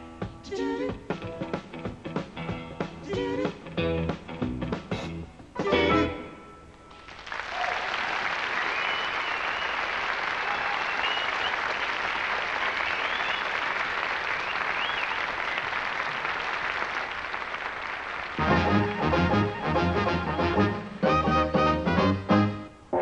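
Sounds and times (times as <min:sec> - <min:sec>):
audience applauding: 0:06.9 - 0:19.8.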